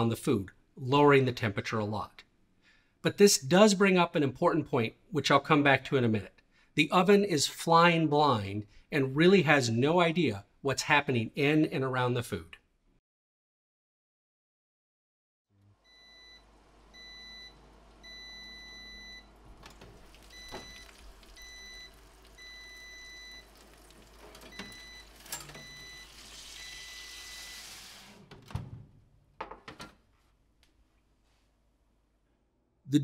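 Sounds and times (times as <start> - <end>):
oven electronic beeps: 15.8 - 28.0
oven door opening: 19.5 - 21.0, 24.0 - 26.2, 28.0 - 30.0.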